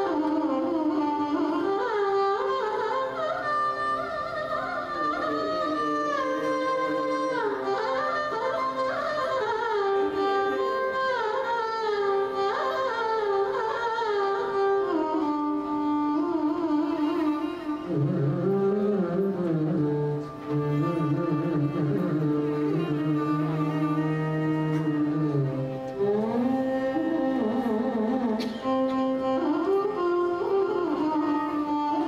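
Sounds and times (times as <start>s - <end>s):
violins playing ornamented melody: 16.1s - 32.0s.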